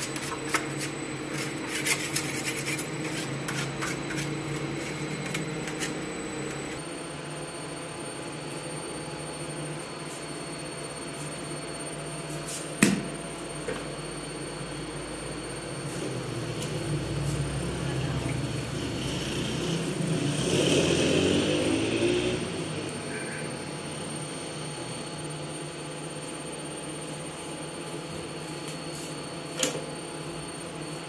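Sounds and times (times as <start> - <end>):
scraping in a steel bowl: 0.0 - 6.0
machinery humming: 0.0 - 31.0.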